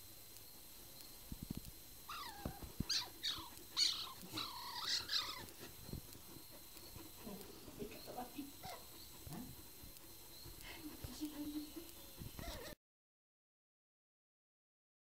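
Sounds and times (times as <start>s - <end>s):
high squealing calls: 2.1s - 9.5s.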